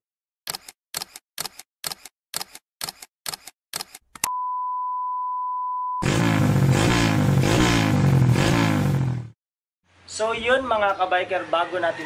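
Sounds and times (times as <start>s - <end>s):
test-tone beep: 4.3s - 6.0s.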